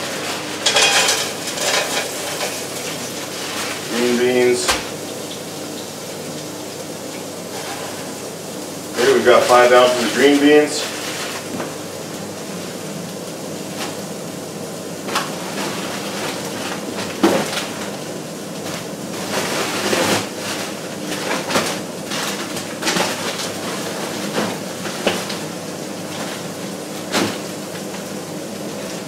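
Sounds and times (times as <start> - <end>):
utensils knocking against pan: 0.6 - 2.6
beans hissing in frying pan: 6.5 - 12.0.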